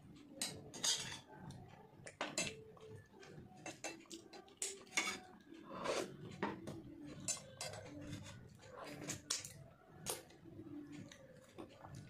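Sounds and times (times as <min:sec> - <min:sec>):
spoon clinking on steel plate: 0:00.4 - 0:01.2, 0:03.6 - 0:05.3.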